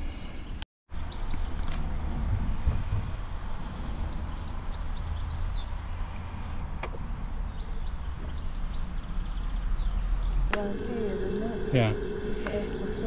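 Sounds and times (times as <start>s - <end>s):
songbirds chirping: 0.0s - 13.0s
wind rumble on microphone: 1.3s - 5.6s, 9.8s - 13.0s.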